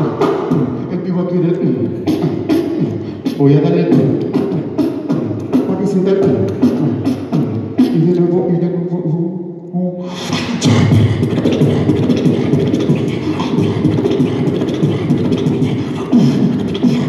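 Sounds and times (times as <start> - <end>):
beatboxing through a microphone: 0.0 - 17.0.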